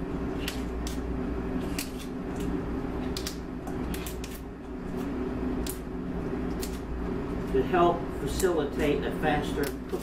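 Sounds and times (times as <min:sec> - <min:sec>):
low machine hum: 0:00.0 - 0:10.0
artichoke leaves snapping: 0:00.4 - 0:04.4, 0:05.0 - 0:05.9, 0:06.5 - 0:06.8, 0:09.6 - 0:10.0.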